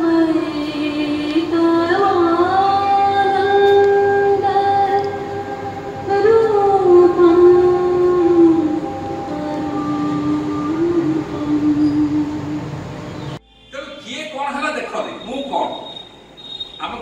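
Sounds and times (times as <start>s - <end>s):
woman singing slow melody: 0.0s - 13.0s.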